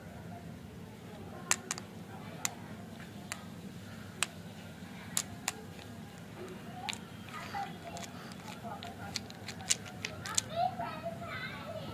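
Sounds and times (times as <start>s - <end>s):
lollipops clicking together: 1.5s - 2.6s, 5.1s - 10.5s.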